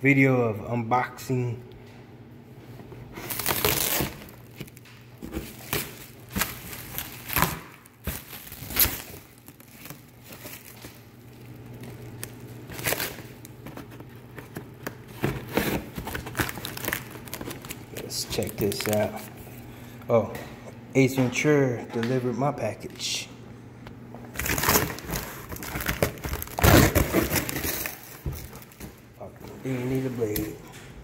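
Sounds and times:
plastic wrapping crinkling: 3.1 - 19.7, 24.3 - 30.6.

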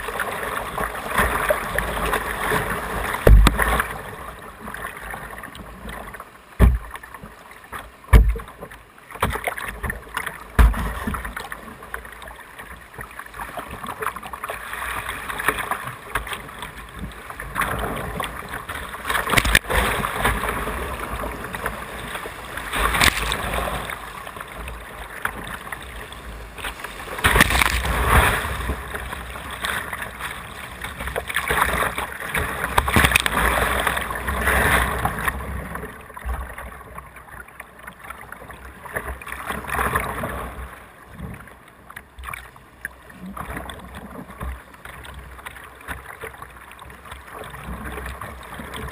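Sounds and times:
whitewater rushing and splashing: 0.0 - 36.8
low thumps on kayak: 3.2 - 3.9, 6.6 - 7.0, 8.1 - 11.4.

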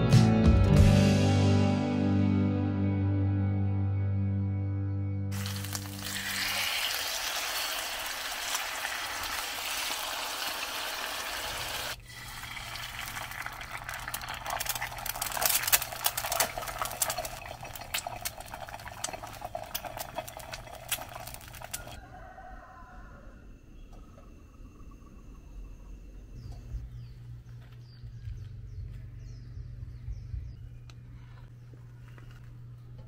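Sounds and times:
soft guitar music: 0.0 - 5.4
food sizzling on griddle: 5.3 - 18.4
egg sizzling with crackling pops: 5.3 - 22.0.

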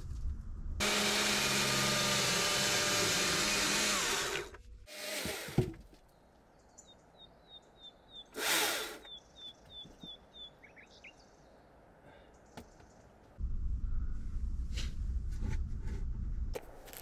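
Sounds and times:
bird chirping: 6.0 - 8.4, 9.0 - 13.2.

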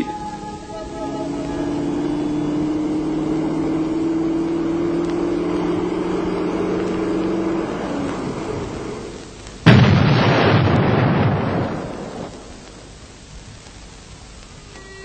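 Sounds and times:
truck engine running: 0.0 - 9.8
loud explosion: 9.6 - 12.3.

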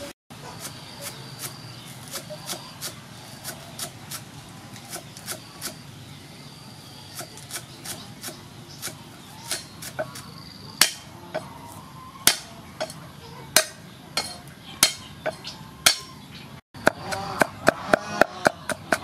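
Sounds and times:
cleaver chopping on wooden block: 7.2 - 11.1, 12.3 - 13.0, 13.6 - 16.1, 16.8 - 19.0.

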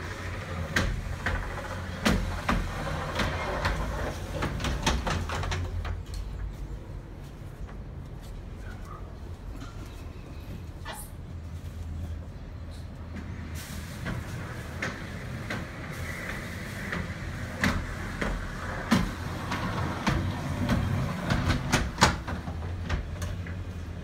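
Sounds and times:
glass panels clicking and knocking: 0.1 - 6.0.

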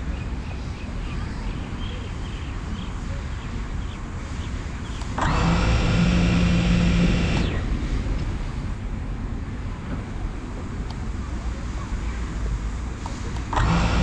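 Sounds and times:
drone motors whining: 4.8 - 8.8, 13.3 - 14.0.

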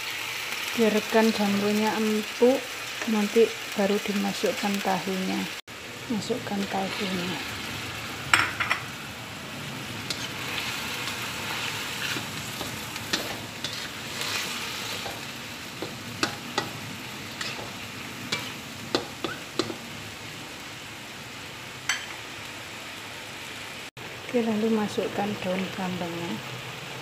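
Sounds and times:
food sizzling in a wok: 0.0 - 27.0
utensil clicking on wok: 12.0 - 14.4, 15.0 - 19.8.

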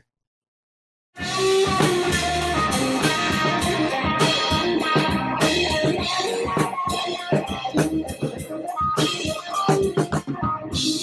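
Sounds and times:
plucked guitar music: 1.2 - 8.6.

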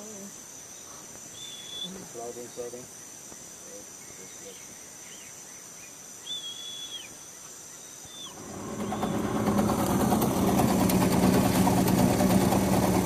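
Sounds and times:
high hum of insects: 0.0 - 13.0
bird whistled call: 1.3 - 2.0, 6.2 - 7.2, 8.0 - 9.3
boat motor running: 8.4 - 13.0.

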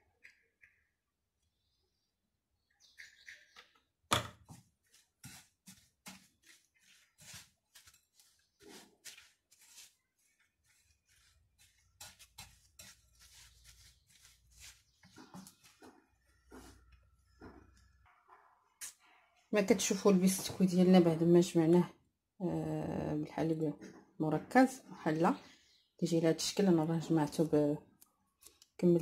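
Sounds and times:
spatula scraping glass bowl: 4.9 - 17.9.

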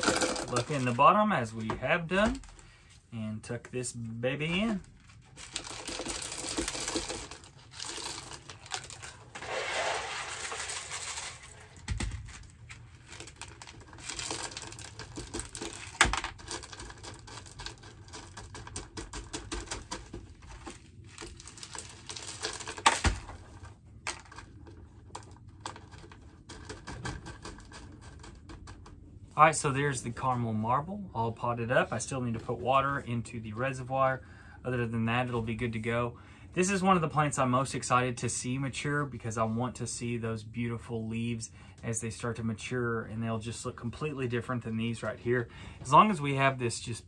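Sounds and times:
clay pebbles pouring and rattling: 0.0 - 1.0, 4.5 - 28.8
pebbles clicking: 0.0 - 1.0, 4.6 - 29.0.

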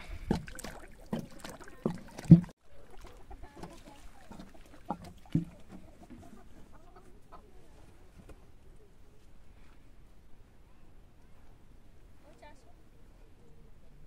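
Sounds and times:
chickens clucking: 1.0 - 8.9
knocks and thumps: 1.9 - 2.5, 4.9 - 5.8.

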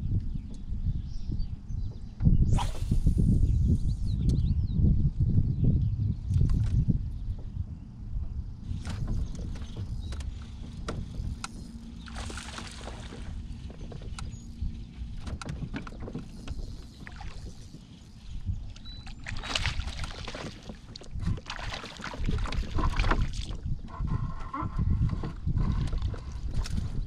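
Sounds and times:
fish splashing and thrashing: 8.8 - 27.0
water sloshing: 8.9 - 26.6.

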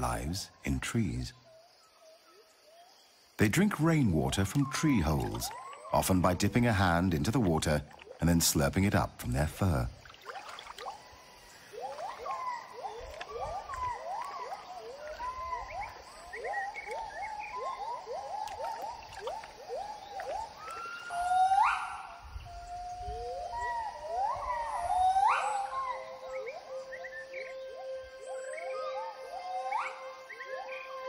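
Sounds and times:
gibbon rising call: 11.7 - 22.2.

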